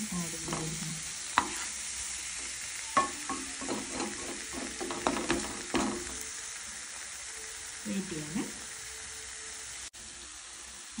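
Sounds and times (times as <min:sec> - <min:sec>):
chicken sizzling in a frying pan: 0:00.0 - 0:11.0
spatula tapping and scraping pan: 0:01.4 - 0:01.7, 0:03.0 - 0:06.2.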